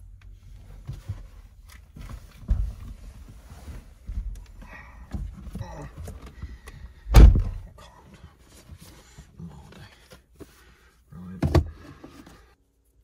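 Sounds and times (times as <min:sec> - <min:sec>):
heavy thunk in car: 0:07.1 - 0:07.7.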